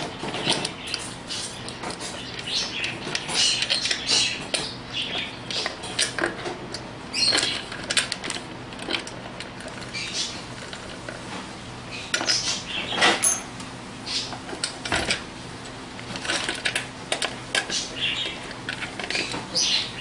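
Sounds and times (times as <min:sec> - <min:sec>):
metallic clicks and rattles of bolts: 0:13.0 - 0:13.5.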